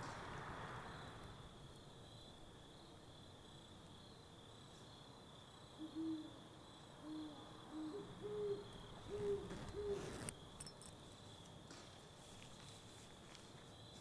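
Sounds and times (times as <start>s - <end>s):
crickets chirring: 0.0s - 14.0s
owl hooting: 5.8s - 6.4s, 7.0s - 10.3s.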